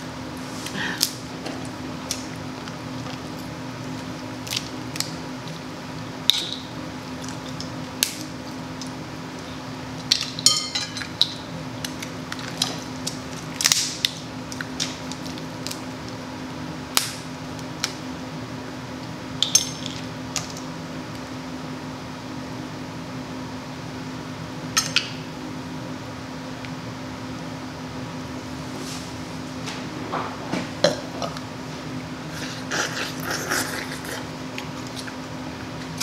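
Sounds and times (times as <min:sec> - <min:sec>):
crab shells cracking: 0:04.0 - 0:05.6, 0:11.0 - 0:16.2.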